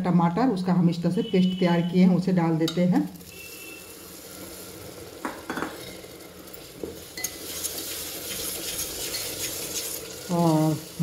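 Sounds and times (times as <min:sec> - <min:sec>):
paste sizzling in hot oil: 0:01.3 - 0:11.0
steel spoon scraping pot: 0:05.8 - 0:10.8.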